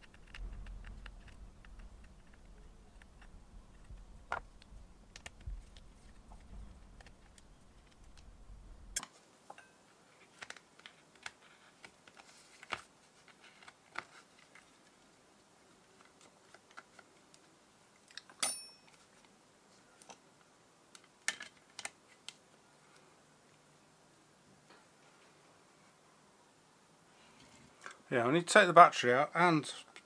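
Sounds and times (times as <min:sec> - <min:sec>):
sharp metallic click ringing: 0:18.4 - 0:18.9.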